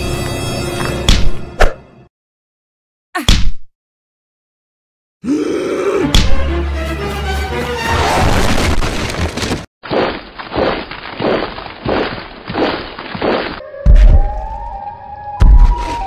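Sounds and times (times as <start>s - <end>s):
cartoon crashing and breaking: 7.9s - 14.2s.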